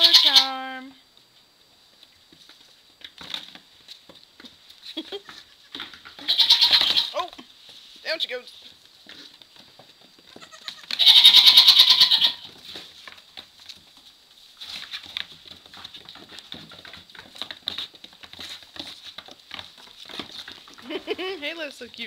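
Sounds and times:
goat kid bleating: 0.0 - 0.6, 6.2 - 7.4, 10.3 - 12.5
hooves tapping on straw: 12.4 - 22.0.

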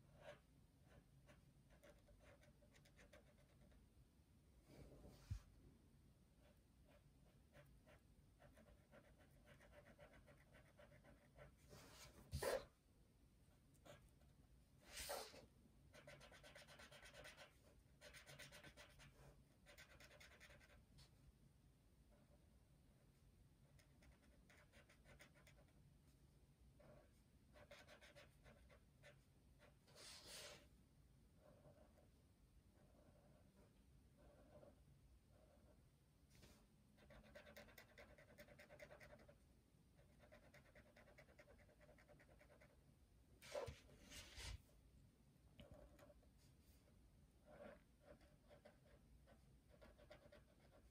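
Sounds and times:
pen scratching on paper: 0.1 - 3.8, 6.4 - 12.7, 14.8 - 20.8, 23.7 - 25.7, 26.8 - 30.6, 31.4 - 32.1, 32.8 - 35.8, 37.0 - 39.4, 40.0 - 42.8, 43.4 - 44.6, 47.4 - 50.9.

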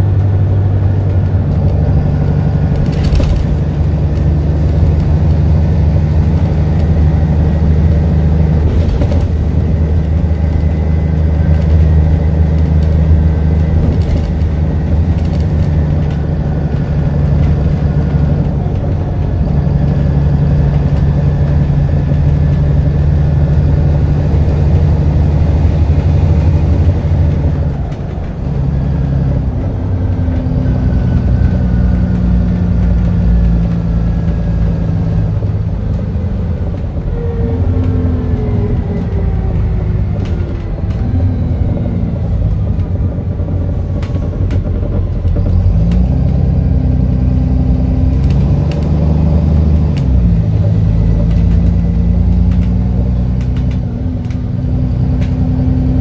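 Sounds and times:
bus diesel engine drone: 0.0 - 56.0.

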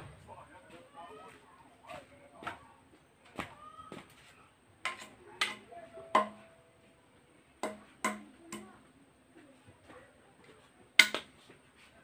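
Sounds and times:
machete chopping bamboo: 7.6 - 8.7, 11.0 - 11.3.

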